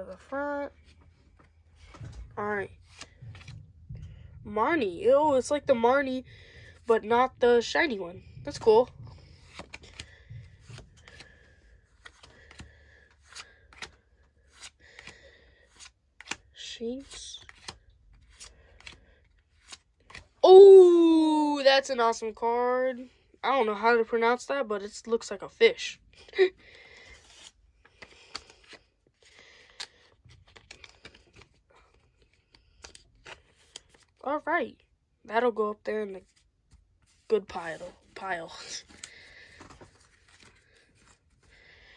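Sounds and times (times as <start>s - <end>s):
trading cards rubbing and sliding: 8.5s - 11.2s, 27.1s - 28.9s.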